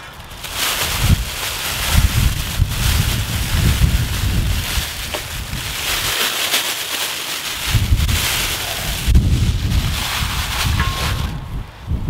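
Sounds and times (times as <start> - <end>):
plastic bag crinkling: 0.0 - 11.4
wind buffeting microphone: 0.1 - 6.2, 7.5 - 12.0.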